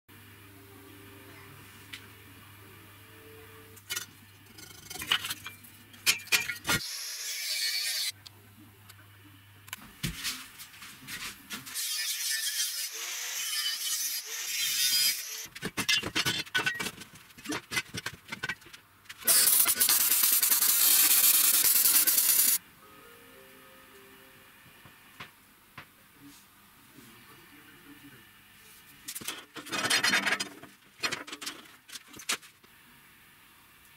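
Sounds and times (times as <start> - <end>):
angle grinder cutting steel tube: 6.8 - 8.1, 11.8 - 15.5, 19.2 - 22.6
loud steady power tool noise: 6.8 - 8.1, 11.8 - 15.5, 19.2 - 22.6
steel pieces knocking and clattering: 15.5 - 20.8.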